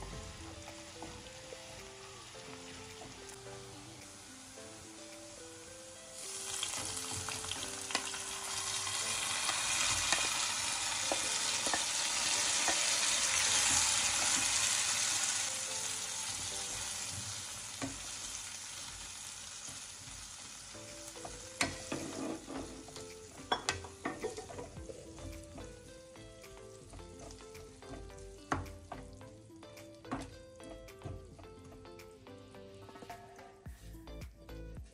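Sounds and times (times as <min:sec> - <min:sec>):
pickle sizzling in hot oil: 0:00.0 - 0:31.2
wooden spatula scraping pan: 0:21.6 - 0:23.0.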